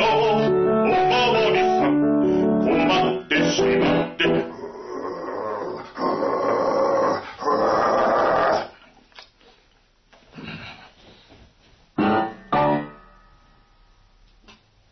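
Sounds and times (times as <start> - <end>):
piano accompaniment: 0.0 - 4.6, 12.0 - 13.8.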